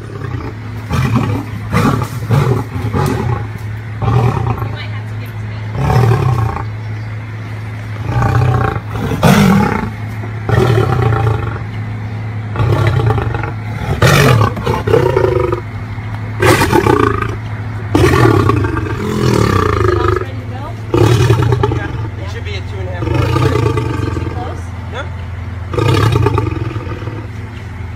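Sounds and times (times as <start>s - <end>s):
lion roaring: 0.0s - 4.8s, 5.7s - 6.8s, 8.0s - 11.7s, 12.5s - 15.7s, 16.4s - 20.3s, 20.9s - 22.2s, 23.0s - 24.6s, 25.7s - 27.3s.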